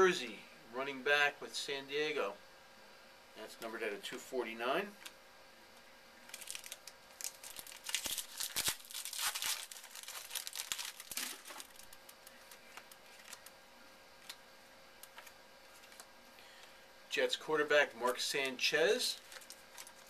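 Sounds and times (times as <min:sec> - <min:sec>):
card pack wrapper crinkling: 0:06.3 - 0:13.6, 0:15.0 - 0:16.1, 0:19.1 - 0:20.0.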